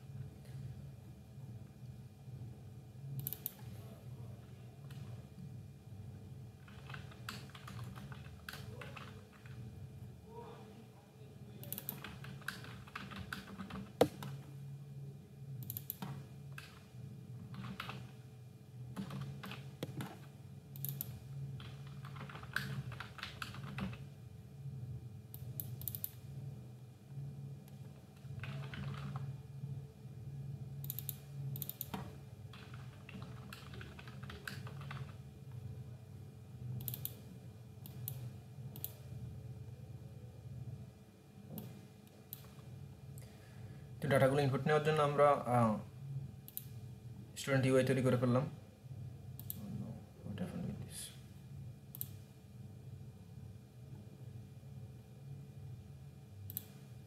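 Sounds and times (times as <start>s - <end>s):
steady low hum: 0.0s - 57.0s
keyboard typing: 6.6s - 9.6s, 11.6s - 14.4s, 17.5s - 18.2s, 19.0s - 24.0s, 25.4s - 26.2s, 28.2s - 29.3s, 30.8s - 35.2s, 36.8s - 37.2s.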